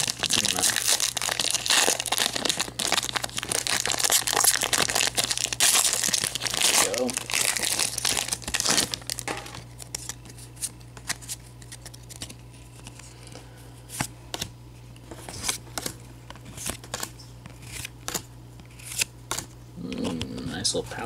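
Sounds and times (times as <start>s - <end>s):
foil wrapper crinkling: 0.0s - 13.0s
steady low hum: 0.0s - 21.0s
trading cards flipped by hand: 13.9s - 19.5s.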